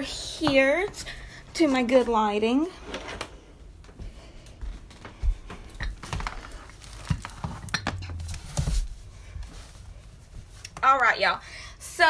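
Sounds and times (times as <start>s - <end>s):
footsteps thumping: 3.8s - 10.5s.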